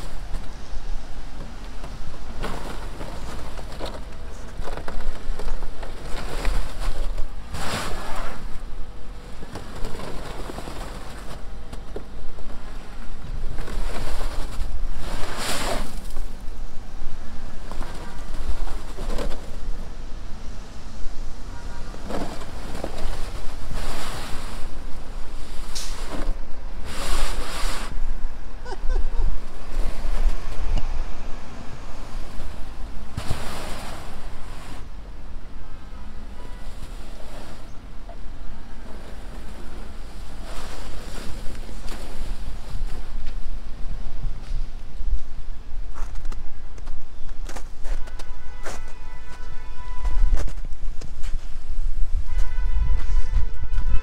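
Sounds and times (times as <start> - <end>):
tyres spinning in snow: 0.0 - 20.0, 21.8 - 30.8, 31.5 - 35.0, 36.2 - 44.4.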